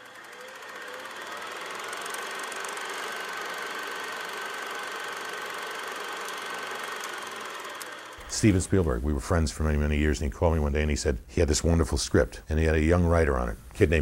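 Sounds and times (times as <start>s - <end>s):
mechanical whirring and clatter: 0.0s - 8.4s.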